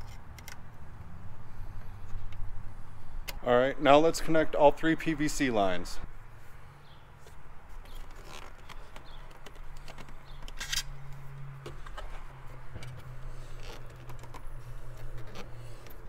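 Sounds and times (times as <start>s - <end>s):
rubber hoses clicking and rubbing: 7.2s - 16.0s.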